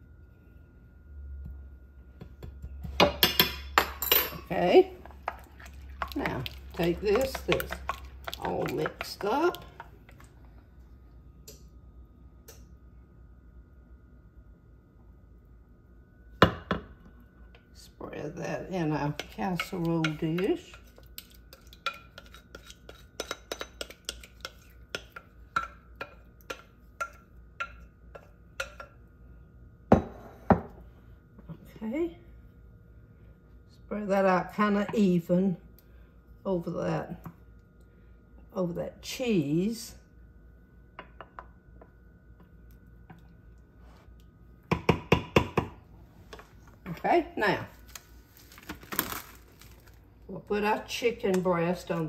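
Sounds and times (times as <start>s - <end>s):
spoon clacking against dish: 5.3s - 9.9s, 19.1s - 29.0s
spoon scraping ceramic dish: 19.2s - 27.2s.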